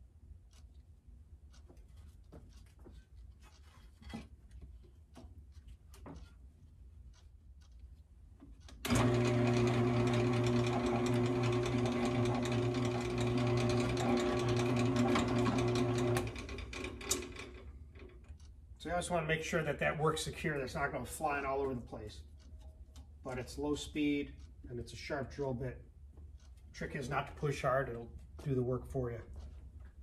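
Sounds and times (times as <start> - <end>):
drill press motor humming: 8.8 - 18.2.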